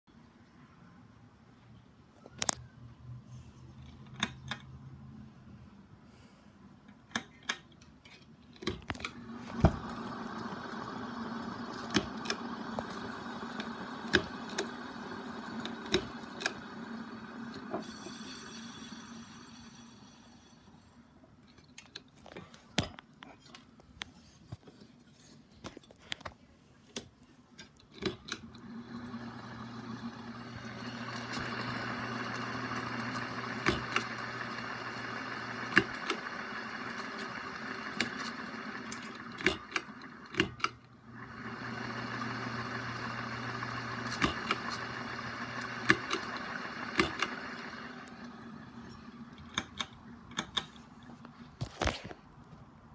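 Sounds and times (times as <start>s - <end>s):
ceiling fan motor humming: 8.8s - 20.8s, 28.2s - 51.6s.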